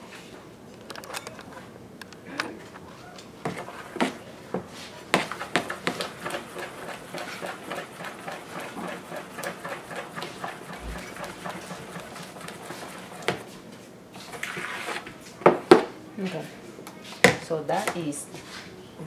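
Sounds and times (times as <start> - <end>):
whisk beating batter in a bowl: 5.1 - 13.6, 14.2 - 15.1
whisk knocking against bowl: 5.2 - 13.5.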